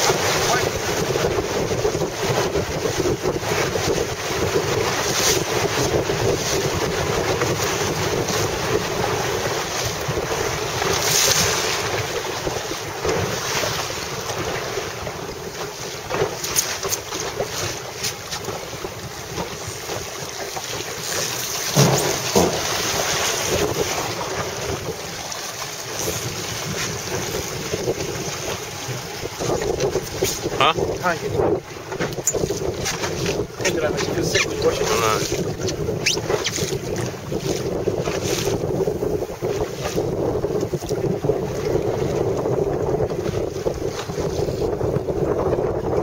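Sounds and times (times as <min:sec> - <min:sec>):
wind blowing across microphone: 0:00.0 - 0:46.0
short knocks: 0:21.7 - 0:22.9.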